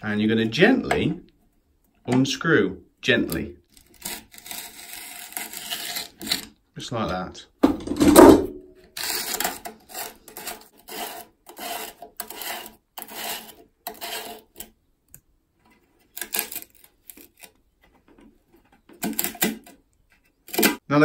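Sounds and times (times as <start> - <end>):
plastic threads scraping: 3.3 - 6.6, 8.9 - 14.8, 15.6 - 20.8.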